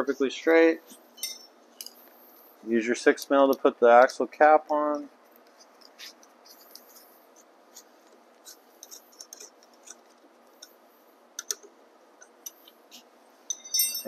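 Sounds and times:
hex key clicks and scrapes: 7.8 - 10.8.

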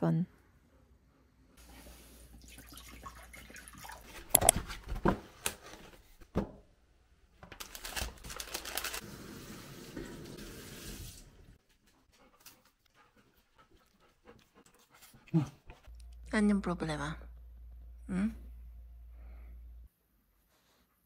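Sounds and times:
water poured into glass bowl: 2.3 - 4.4
paper wrapper rustling: 7.4 - 9.2.

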